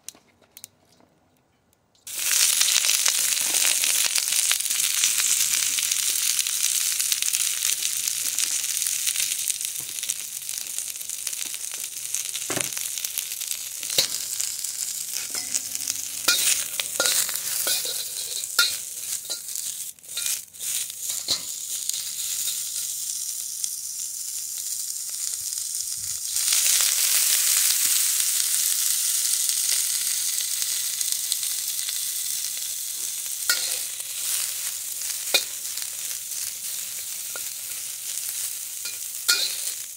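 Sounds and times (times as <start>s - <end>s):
broccoli sizzling in a wok: 2.1s - 39.9s
metal spatula scraping a pan: 15.0s - 22.6s, 33.5s - 34.5s, 38.8s - 39.8s.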